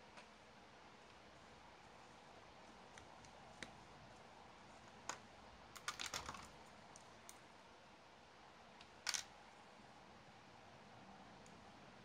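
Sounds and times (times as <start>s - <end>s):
small plastic and metal parts clicking: 5.1s - 7.4s, 9.0s - 9.3s.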